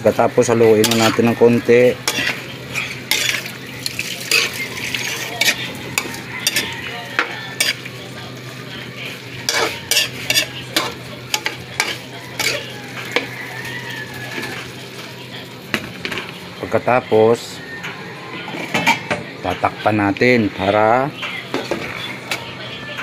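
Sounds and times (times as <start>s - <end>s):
meat sizzling: 0.0s - 16.0s
metal spatula scraping a wok: 0.2s - 14.8s.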